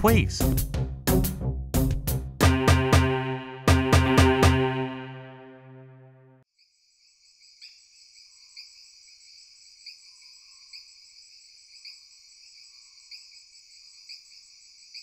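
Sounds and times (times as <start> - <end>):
music: 0.0 - 6.4
crickets chirping: 6.8 - 15.0.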